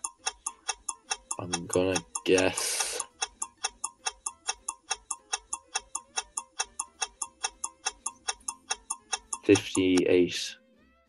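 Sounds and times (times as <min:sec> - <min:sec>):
clock ticking quickly: 0:00.0 - 0:10.4
person talking: 0:01.4 - 0:03.1, 0:09.4 - 0:10.6.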